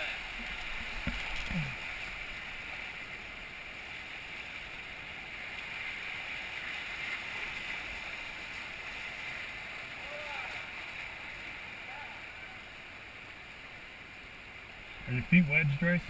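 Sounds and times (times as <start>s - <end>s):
whitewater rapids rushing: 0.0s - 16.0s.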